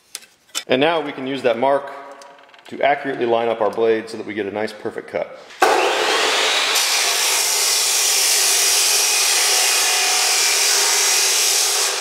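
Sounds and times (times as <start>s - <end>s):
chop saw grinding steel: 5.6s - 12.0s.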